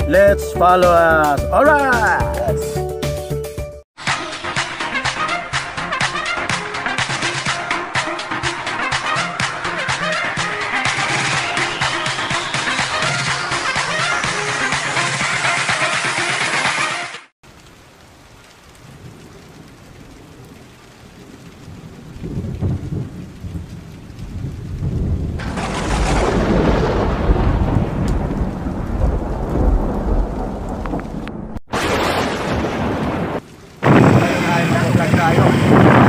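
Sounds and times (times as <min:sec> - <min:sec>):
heavy rain: 0:00.6 - 0:02.5, 0:04.0 - 0:36.0
thunder rumbling: 0:18.8 - 0:36.0
loud thunderclap: 0:22.2 - 0:36.0.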